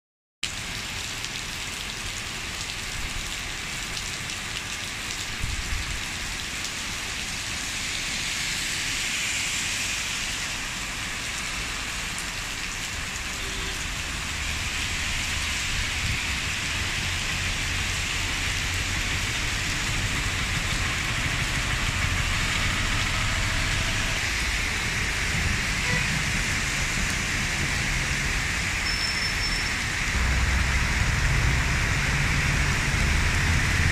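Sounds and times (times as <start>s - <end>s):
heavy rain pouring on pavement: 0.4s - 33.9s
low rumble: 30.2s - 33.9s.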